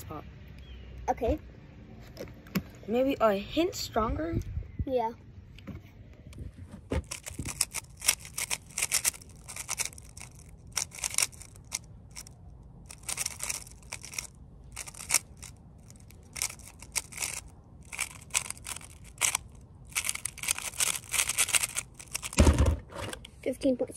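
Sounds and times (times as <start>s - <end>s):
puzzle cube clicking: 7.1s - 12.3s, 12.9s - 22.4s.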